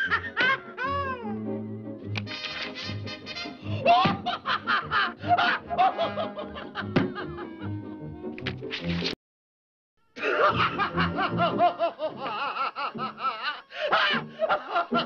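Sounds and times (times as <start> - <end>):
cartoon cat cackling: 2.3 - 3.8.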